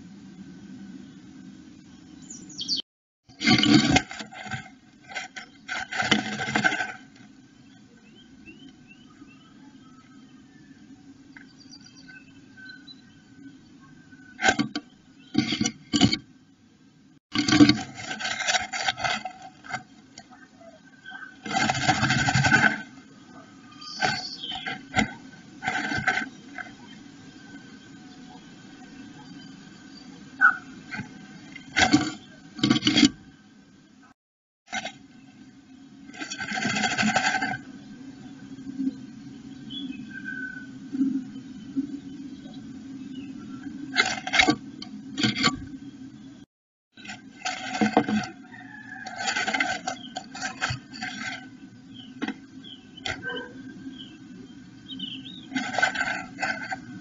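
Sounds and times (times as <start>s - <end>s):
steady low hum: 0.0s - 57.0s
bird scratching in nest: 3.3s - 7.4s, 14.2s - 16.3s, 17.3s - 27.8s, 30.4s - 33.3s, 36.1s - 37.8s, 43.5s - 45.8s, 47.0s - 53.8s, 55.4s - 57.0s
rustling in nest: 3.3s - 9.1s, 13.4s - 16.3s, 17.3s - 33.3s, 34.7s - 38.8s, 39.6s - 46.2s, 46.9s - 57.0s.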